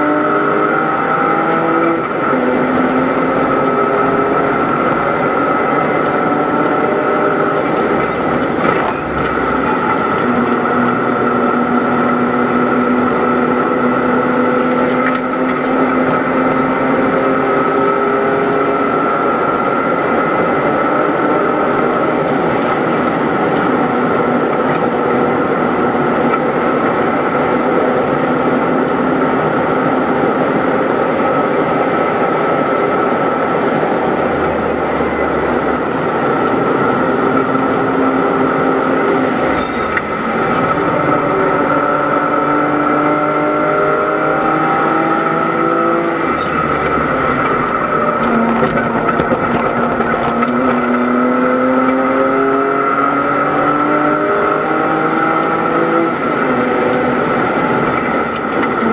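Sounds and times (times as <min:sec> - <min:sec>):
car engine revving high: 0:00.0 - 0:58.9
wind and tyre noise: 0:00.0 - 0:58.9.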